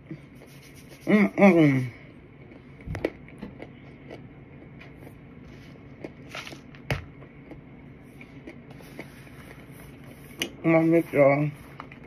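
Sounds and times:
person chewing with crunches: 1.8s - 10.6s.

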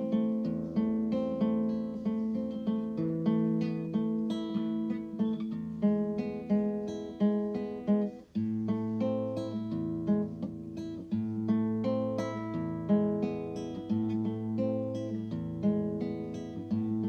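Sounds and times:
plucked acoustic guitar music: 0.0s - 17.0s.

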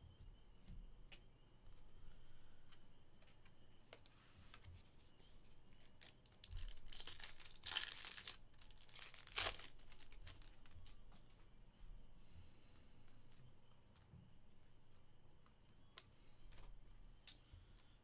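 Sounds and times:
soft clicks of cards: 2.7s - 6.7s, 14.8s - 18.0s
foil pack tearing: 5.8s - 10.8s.

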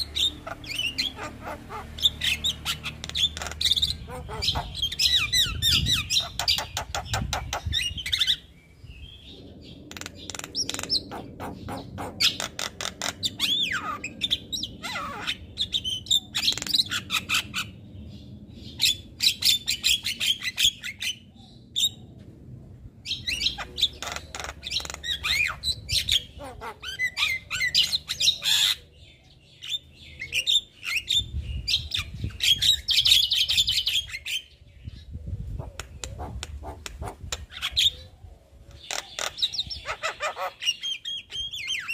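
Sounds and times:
bird chattering and whistling: 0.0s - 8.5s, 9.9s - 17.7s, 23.1s - 28.8s, 35.6s - 38.1s, 38.7s - 41.9s.

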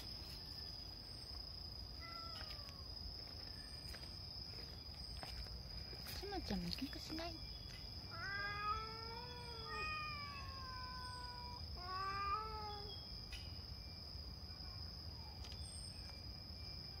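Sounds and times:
cat meowing: 2.0s - 2.8s, 8.1s - 12.9s.

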